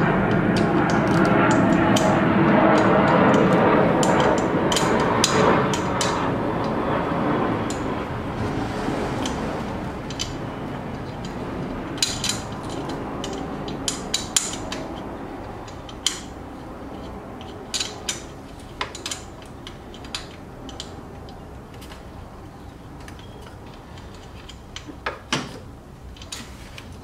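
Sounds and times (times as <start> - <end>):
steady background noise: 0.0 - 27.0
sharp metallic clicks and clinks: 10.0 - 21.5.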